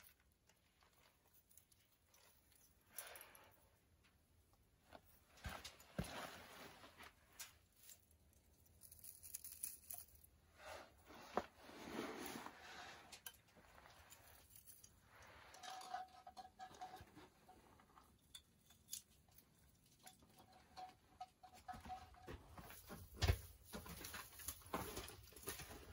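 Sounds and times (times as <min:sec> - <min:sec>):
faint rustling of plastic branches: 0:04.8 - 0:25.9
light clicks of ornaments: 0:07.3 - 0:10.4, 0:13.1 - 0:17.3.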